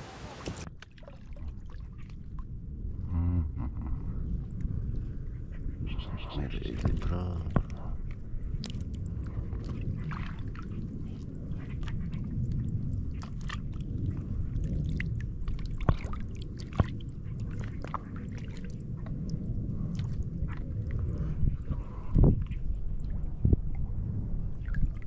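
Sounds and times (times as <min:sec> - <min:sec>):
water sloshing: 0:00.0 - 0:02.4, 0:06.5 - 0:21.1
wind rumbling on microphone: 0:00.0 - 0:25.0.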